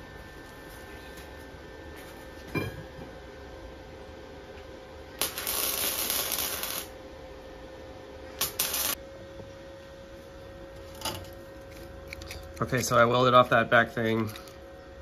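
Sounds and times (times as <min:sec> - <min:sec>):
faint steady hum: 0:00.0 - 0:15.0
arc welding crackling: 0:05.1 - 0:07.0, 0:08.4 - 0:09.0.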